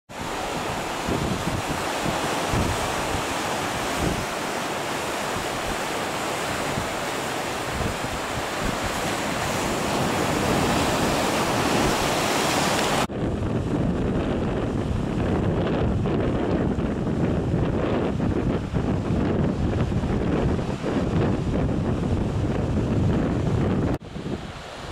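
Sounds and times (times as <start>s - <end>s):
waves breaking over rocks: 0.1s - 13.1s
wind buffeting microphone: 0.1s - 24.9s.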